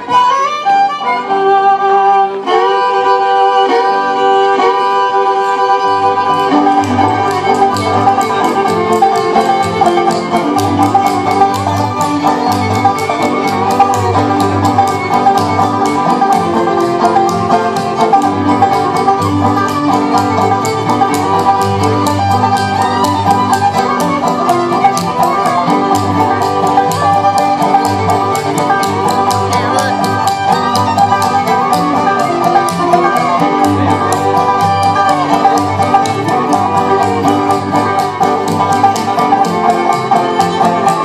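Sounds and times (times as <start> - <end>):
bluegrass band playing: 0.0 - 41.0
rapid banjo picking: 0.0 - 41.0.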